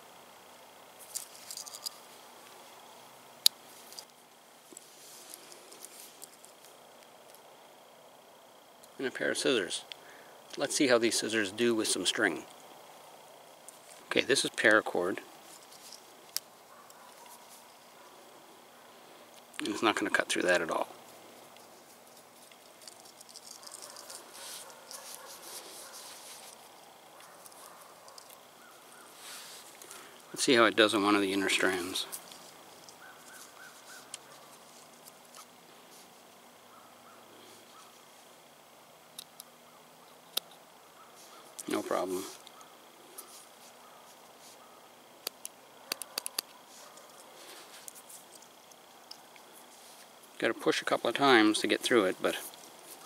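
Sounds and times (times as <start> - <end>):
handling rustling: 1.0 - 2.2, 21.0 - 30.3
small crackling clicks: 45.2 - 50.4.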